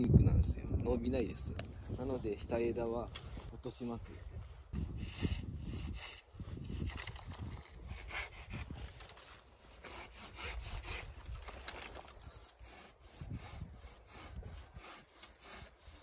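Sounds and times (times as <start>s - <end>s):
hand saw cutting wood: 4.8s - 6.9s, 7.7s - 11.4s, 12.3s - 16.0s.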